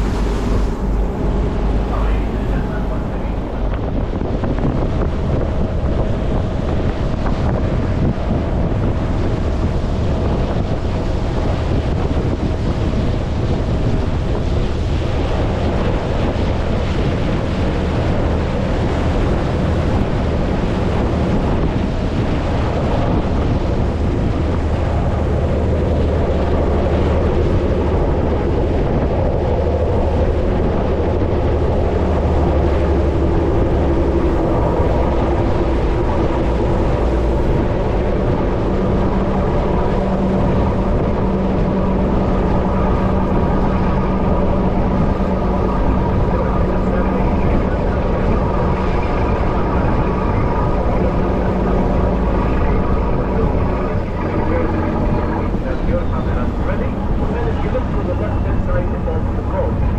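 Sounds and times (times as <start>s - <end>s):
boat engine droning: 0.0s - 59.9s
wind buffeting microphone: 0.0s - 59.9s.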